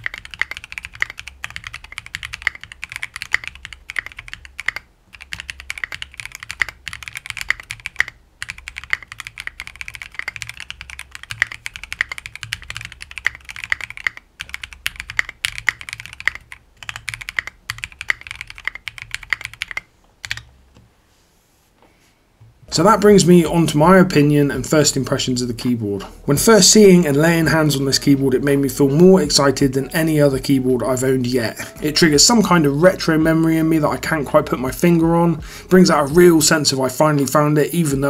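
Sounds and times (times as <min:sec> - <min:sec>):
fast typing on mechanical keyboard: 0:00.0 - 0:20.5.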